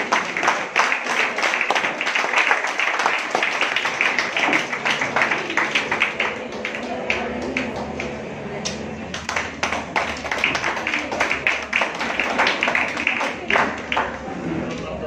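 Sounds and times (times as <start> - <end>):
audience applauding: 0.0 - 14.3
voices: 4.0 - 15.0.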